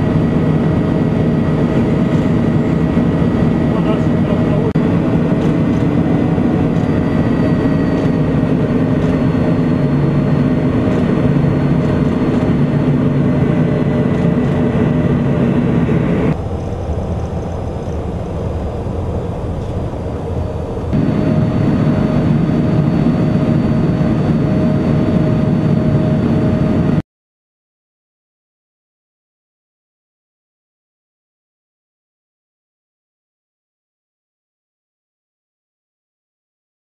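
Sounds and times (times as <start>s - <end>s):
jet engine rush with whine: 0.0s - 27.0s.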